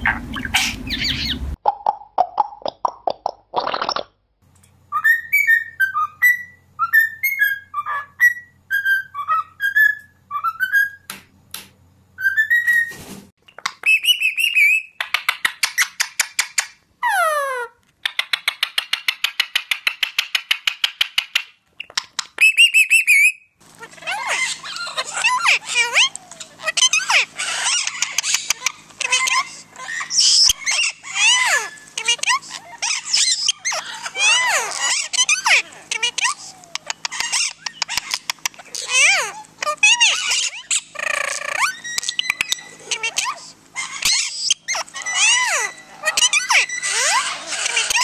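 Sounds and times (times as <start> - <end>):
cockatoo chirping and trilling: 0.0 - 1.6, 4.9 - 11.1, 12.2 - 48.0
parrot calls: 0.0 - 1.6, 13.6 - 21.0, 21.9 - 48.0.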